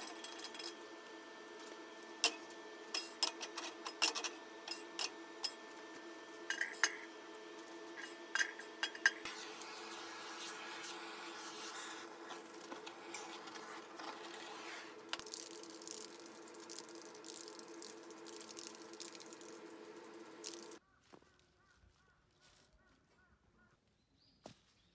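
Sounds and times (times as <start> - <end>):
workshop hum: 0.0 - 20.8
gas torch flame hissing: 8.0 - 15.2.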